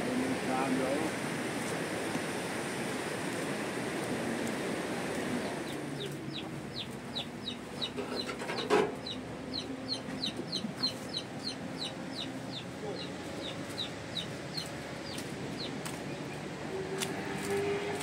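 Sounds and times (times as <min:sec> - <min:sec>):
bird peeping: 0:05.4 - 0:08.4, 0:09.0 - 0:16.4.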